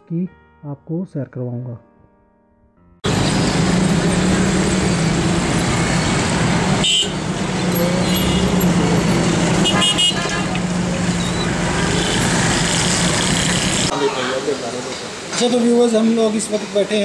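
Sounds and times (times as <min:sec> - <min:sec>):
engine hum: 0:03.0 - 0:14.0
street traffic rushing: 0:03.0 - 0:17.0
car horn toots: 0:06.8 - 0:08.8, 0:09.6 - 0:10.7.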